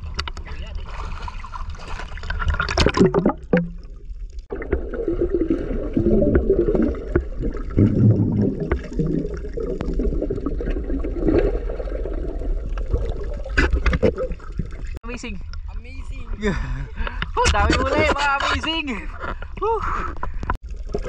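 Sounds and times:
seawater sloshing and gurgling: 0.0 - 15.0.

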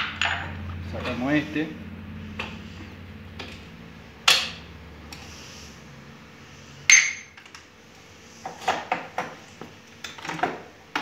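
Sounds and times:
metal clinks and knocks: 0.0 - 0.7.

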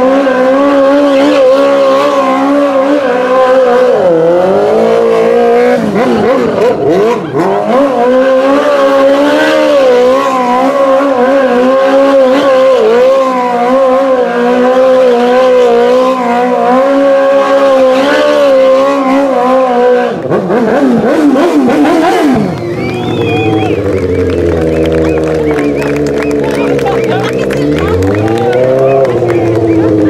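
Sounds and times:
quad bike engine at high revs: 0.0 - 30.0.

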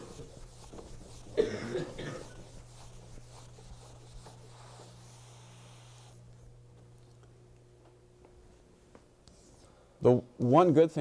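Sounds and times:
eraser rubbing on chalkboard: 0.0 - 6.2
steady low hum: 0.0 - 10.4
person coughing: 1.4 - 2.5.

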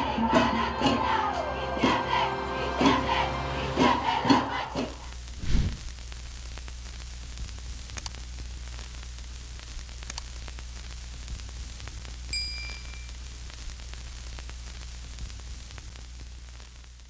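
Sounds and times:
music: 0.0 - 5.2
light clicks: 10.0 - 10.3.

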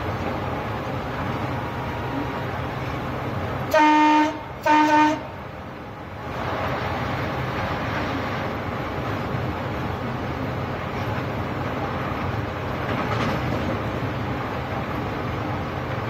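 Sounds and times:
moving train rumble: 0.0 - 16.0
train horn blasts: 3.7 - 5.4.

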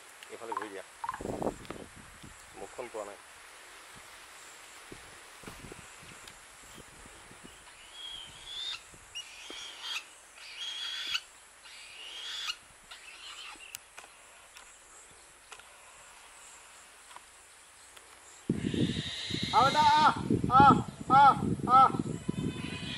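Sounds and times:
bird high-pitched calls: 7.7 - 13.8.

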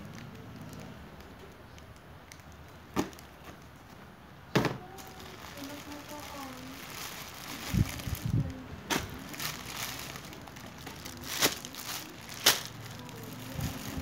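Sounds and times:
sharp plastic crackles: 0.0 - 14.0
plastic bags rustling: 4.6 - 14.0.

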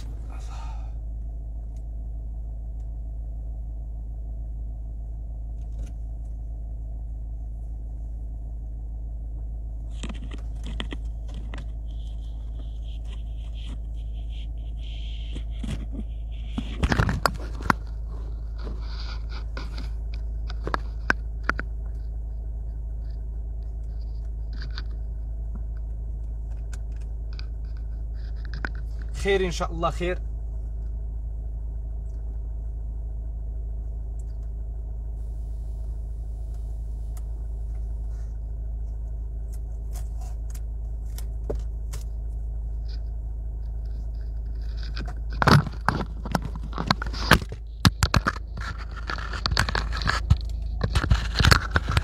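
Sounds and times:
car driving low rumble: 0.0 - 52.0
clicks and scrapes: 9.9 - 22.0, 26.5 - 29.2, 43.7 - 52.0.

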